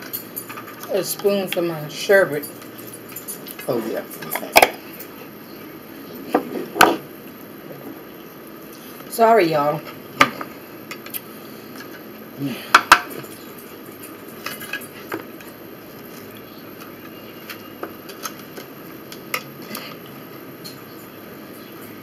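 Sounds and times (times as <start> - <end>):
plates and cutlery clinking: 12.8 - 15.6.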